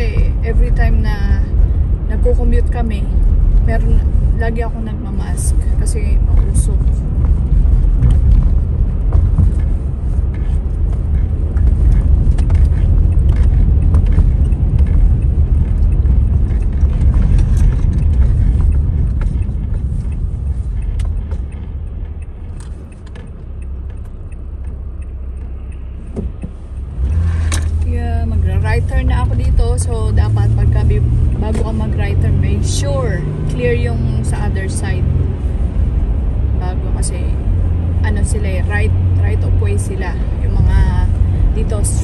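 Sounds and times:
rain ticking on car: 0:00.0 - 0:42.0
tyres rumbling on wet pavement: 0:00.0 - 0:42.0.

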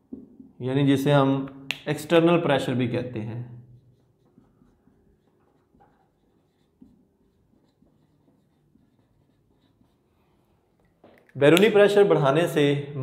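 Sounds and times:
marker pen scratching on whiteboard: 0:03.8 - 0:11.3.

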